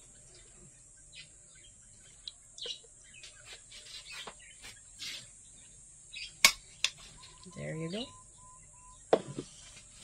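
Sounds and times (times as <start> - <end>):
faint bird chirping: 0.0 - 10.0.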